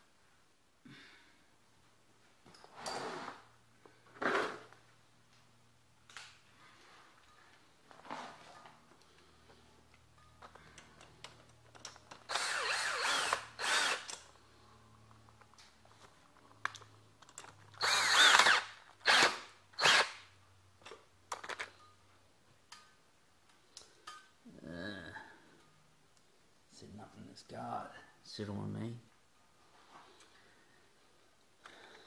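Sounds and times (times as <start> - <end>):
power drill whine in bursts: 12.3 - 14.2, 17.8 - 20.2.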